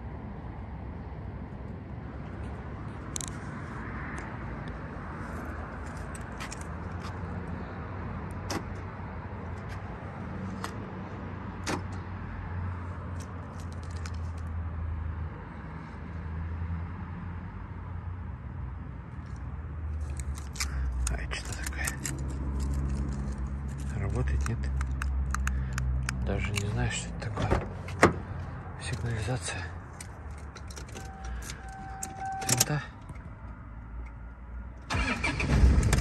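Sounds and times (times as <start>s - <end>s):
low hum of vehicle noise: 0.0s - 36.0s
car keys jangling: 5.8s - 7.2s, 13.1s - 14.5s, 20.0s - 28.0s, 29.9s - 33.2s
sharp metallic ticks: 20.1s - 26.7s.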